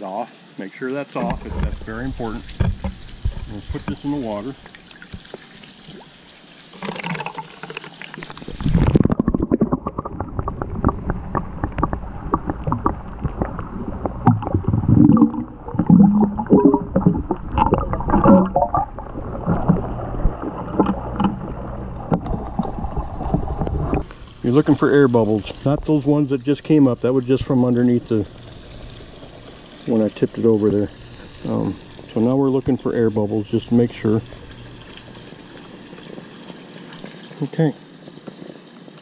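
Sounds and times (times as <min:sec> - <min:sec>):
pool water splashing: 0:01.0 - 0:39.0
low knocks underwater: 0:01.3 - 0:04.0, 0:08.6 - 0:24.1
underwater bubbles clicking: 0:06.8 - 0:39.0.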